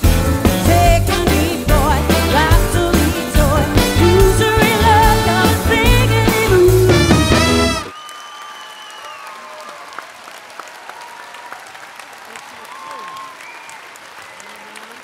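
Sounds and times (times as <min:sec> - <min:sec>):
live pop band: 0:00.0 - 0:07.9
woman singing: 0:00.4 - 0:07.1
audience applause and cheering: 0:03.6 - 0:15.0.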